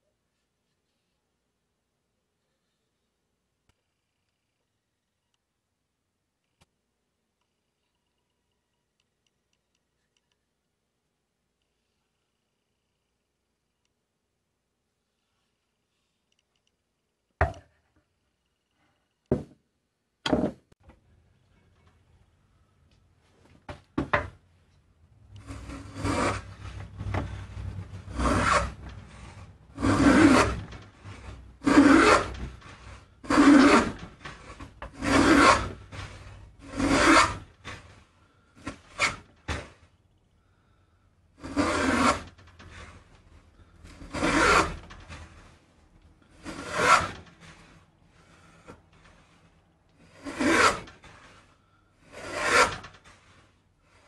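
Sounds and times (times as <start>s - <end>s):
plane rasping along wood: 25.4s - 37.9s, 41.4s - 42.9s, 43.9s - 45.5s, 46.3s - 49.4s, 50.0s - 53.4s.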